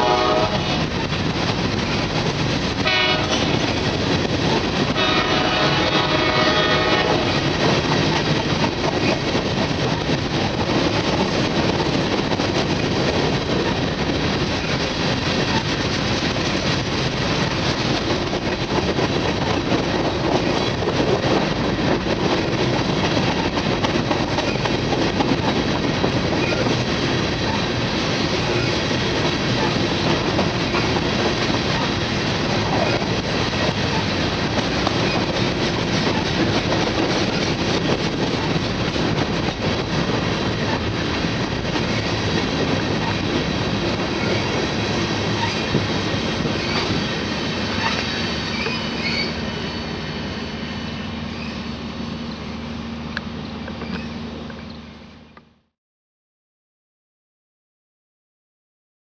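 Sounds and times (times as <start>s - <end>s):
freight train wheels rumbling: 0.0s - 55.7s
high wheel squeals: 47.8s - 51.8s.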